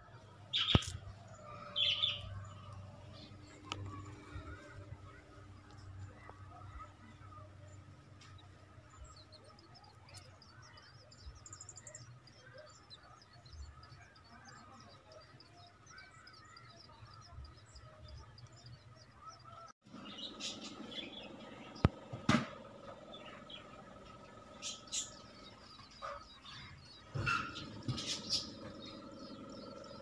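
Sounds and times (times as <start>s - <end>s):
sharp knocks: 22.1s - 22.6s.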